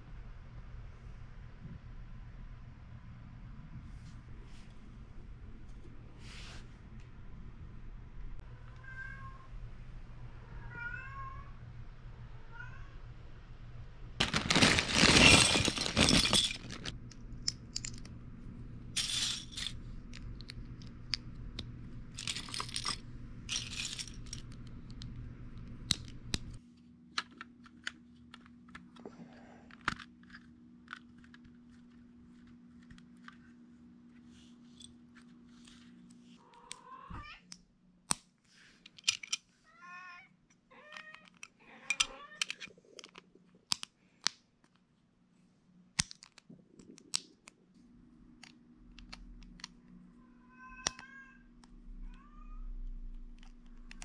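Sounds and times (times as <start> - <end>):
plastic bricks rattling: 14.2 - 17.0, 22.2 - 24.6.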